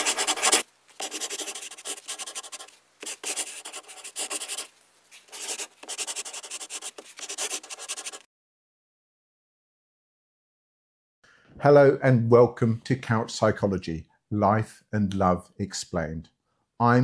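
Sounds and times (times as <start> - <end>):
pen scratching on paper: 0.0 - 8.3.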